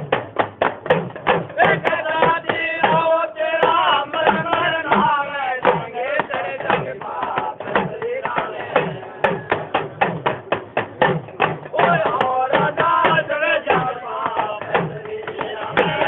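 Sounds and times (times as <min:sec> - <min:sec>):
steady drum beat: 0:00.0 - 0:16.0
man singing folk song: 0:01.5 - 0:09.5, 0:11.7 - 0:16.0.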